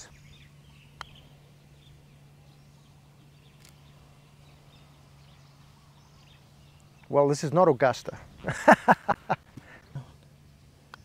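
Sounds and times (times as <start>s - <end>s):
faint bird chirps: 0.0s - 7.3s
steady low hum: 0.0s - 11.0s.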